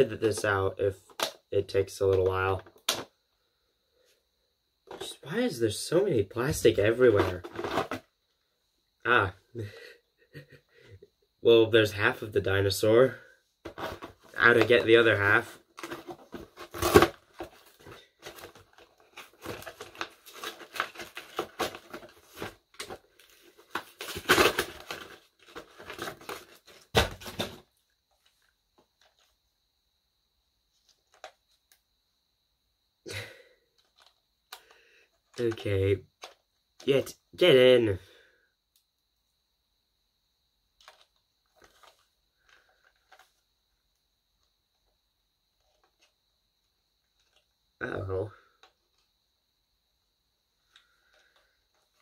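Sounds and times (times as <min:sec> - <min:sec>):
plastic packaging crinkling: 0:15.8 - 0:27.5
faint plastic clicks and scrapes: 0:33.8 - 0:35.5, 0:40.8 - 0:43.4.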